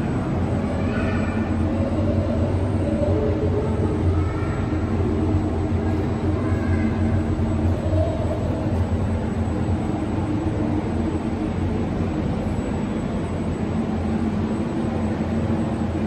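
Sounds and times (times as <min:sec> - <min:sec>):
air blower motor hum: 0:00.0 - 0:16.0.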